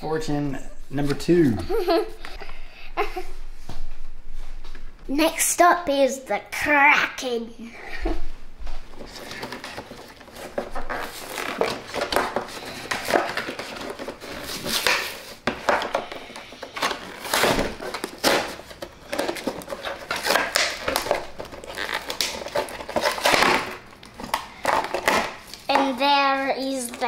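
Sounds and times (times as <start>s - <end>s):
plastic packaging crinkling: 8.9s - 15.4s, 16.2s - 25.8s.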